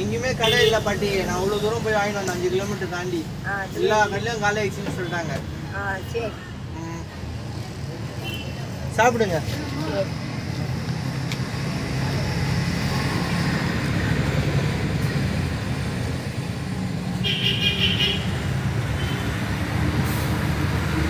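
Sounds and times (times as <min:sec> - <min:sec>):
road traffic rumble: 0:00.0 - 0:21.0
vehicle horn: 0:17.2 - 0:18.4.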